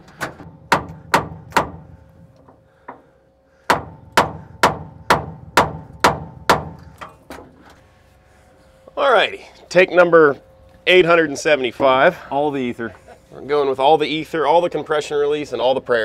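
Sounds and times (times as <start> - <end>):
hammer striking metal: 0.4 - 1.9, 3.7 - 7.2.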